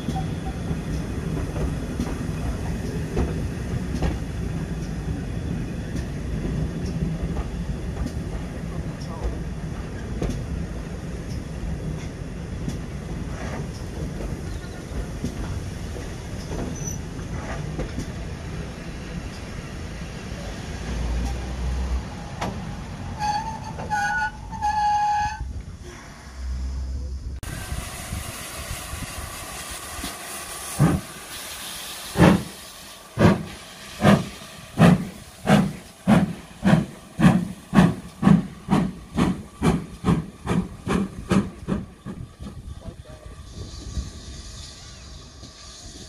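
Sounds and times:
steam locomotive hissing: 0:00.0 - 0:46.0
locomotive exhaust beats: 0:32.0 - 0:46.0.

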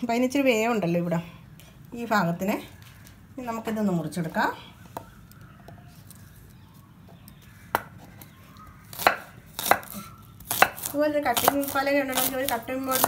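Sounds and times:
knife chopping on wooden board: 0:08.9 - 0:12.3.

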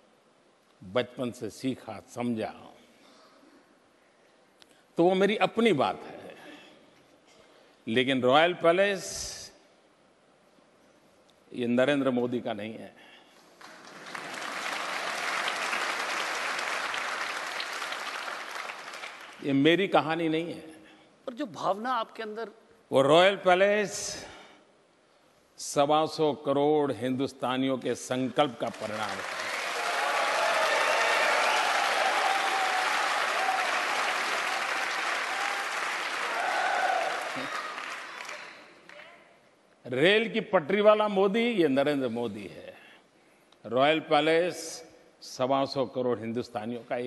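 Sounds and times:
large audience applauding: 0:13.6 - 0:19.4, 0:28.4 - 0:39.0.

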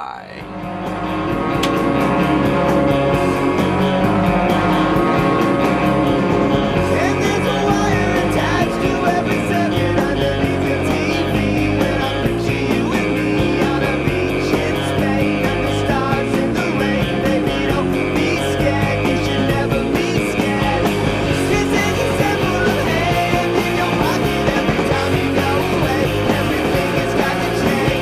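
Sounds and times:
upbeat rock music: 0:00.0 - 0:28.0.

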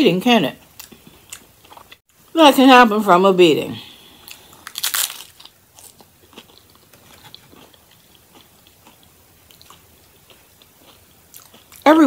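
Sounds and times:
chewing crunchy food: 0:00.6 - 0:02.0, 0:04.1 - 0:12.0.

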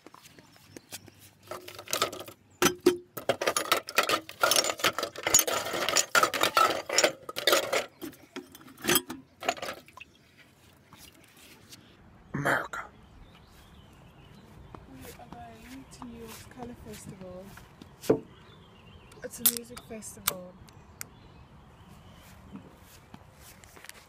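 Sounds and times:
bottles and cans clinking in bucket: 0:01.4 - 0:10.2.

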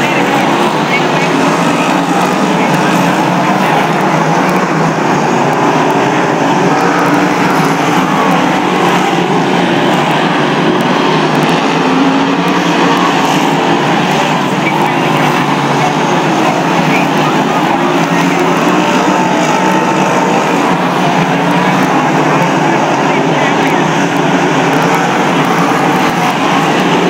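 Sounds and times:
stock car engines racing: 0:00.0 - 0:27.0.

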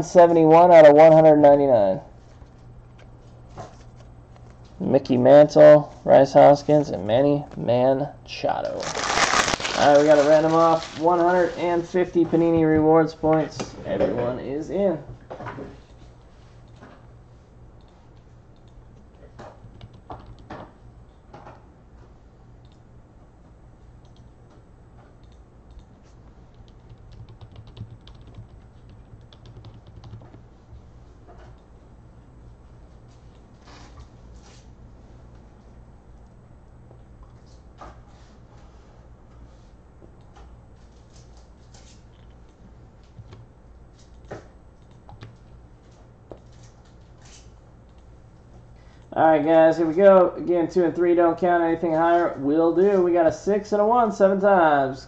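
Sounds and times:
steady low hum: 0:00.0 - 0:55.0
typing on computer keyboard: 0:19.5 - 0:20.6, 0:26.6 - 0:30.4.

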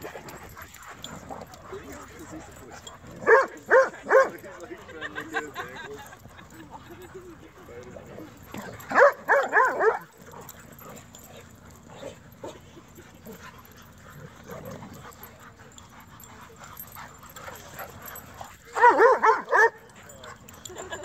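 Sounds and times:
dogs barking high-pitched: 0:02.9 - 0:04.4, 0:08.4 - 0:10.9, 0:16.8 - 0:20.9.

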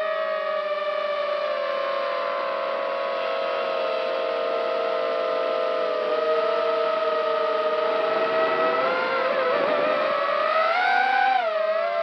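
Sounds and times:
drone propellers whining: 0:04.2 - 0:12.0.

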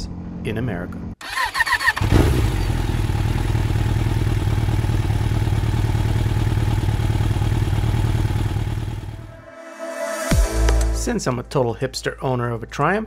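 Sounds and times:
motorcycle engine idling: 0:01.9 - 0:09.2.

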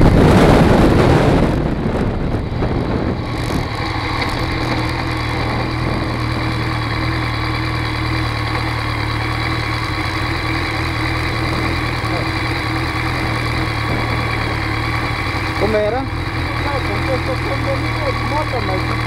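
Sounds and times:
wind noise: 0:00.0 - 0:07.4, 0:10.9 - 0:15.9
motorcycle engine idling: 0:02.0 - 0:19.0.

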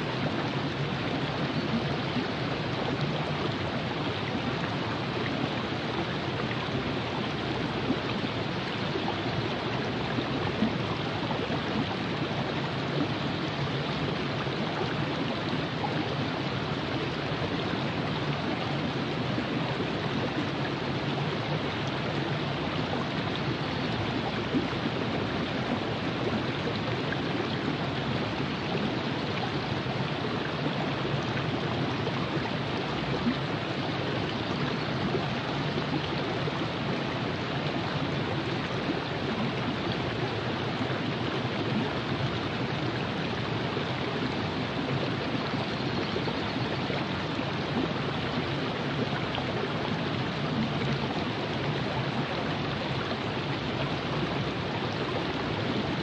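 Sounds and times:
river water rushing: 0:00.0 - 0:56.0.

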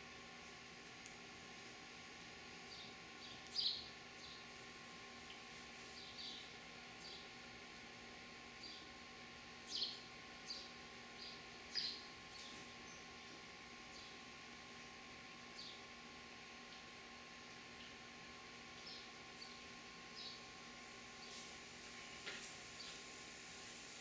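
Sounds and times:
steady high hiss: 0:00.0 - 0:24.0
sparrows chirping: 0:02.7 - 0:04.5, 0:05.9 - 0:07.3, 0:09.6 - 0:13.3, 0:18.8 - 0:20.4.

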